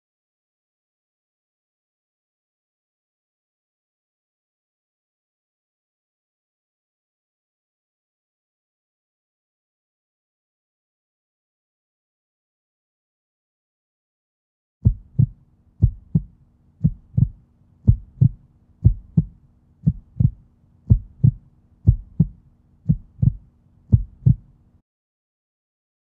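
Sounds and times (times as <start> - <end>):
heartbeat thumps: 14.8 - 24.5
faint low hum: 14.8 - 24.8.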